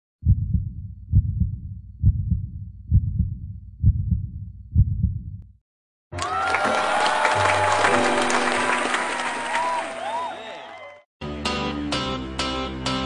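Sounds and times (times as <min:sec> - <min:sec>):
heartbeat thumps: 0:00.2 - 0:05.5
crowd cheering and applause: 0:06.1 - 0:11.1
music: 0:07.4 - 0:10.4, 0:11.2 - 0:13.0.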